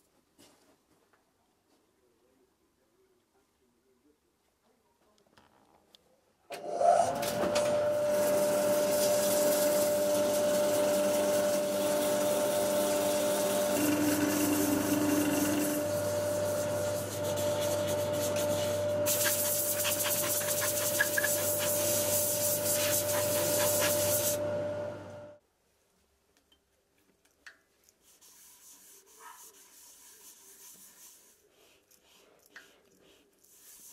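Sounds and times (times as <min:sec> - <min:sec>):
lathe motor whine: 0:06.6 - 0:19.1
sandpaper hissing on wood: 0:14.6 - 0:24.4, 0:28.0 - 0:33.9.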